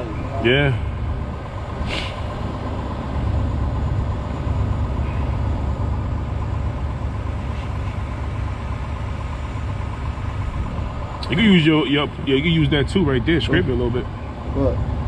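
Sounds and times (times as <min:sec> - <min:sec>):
diesel truck engine idling: 0:00.0 - 0:15.0
brief air hiss: 0:01.8 - 0:02.3.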